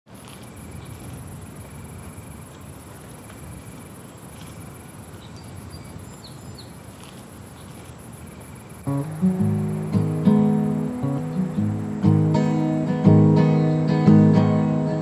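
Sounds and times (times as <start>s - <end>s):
crickets and insects trilling: 0.1s - 15.0s
bird chirps: 5.2s - 6.8s, 8.9s - 12.2s
acoustic guitar: 8.8s - 15.0s.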